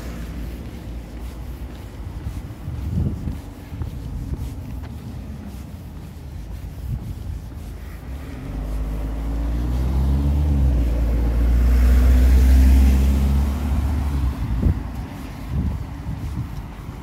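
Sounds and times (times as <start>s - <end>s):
vehicle engine passing by: 7.1s - 16.4s.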